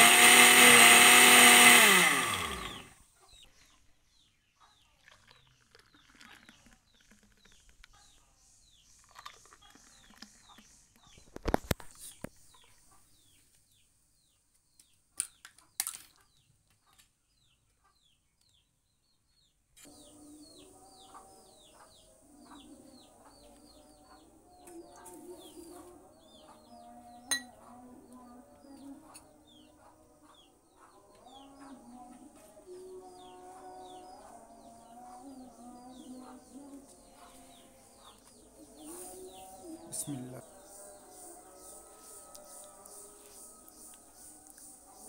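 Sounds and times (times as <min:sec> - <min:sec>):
chicks peeping: 0:19.9 - 0:27.8, 0:28.6 - 0:43.0
glass clinks: 0:27.3 - 0:27.5.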